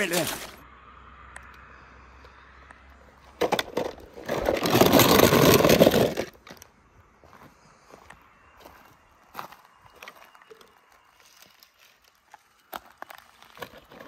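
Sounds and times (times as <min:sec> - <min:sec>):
toy car wheels rattling on track: 0:03.4 - 0:06.4.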